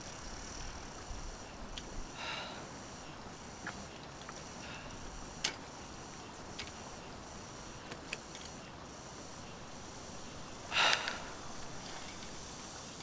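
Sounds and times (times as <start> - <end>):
steady high hiss: 0.0 - 13.0
man breathing: 2.1 - 2.7, 4.6 - 5.2, 10.6 - 11.6
sniffing breath: 10.7 - 11.5.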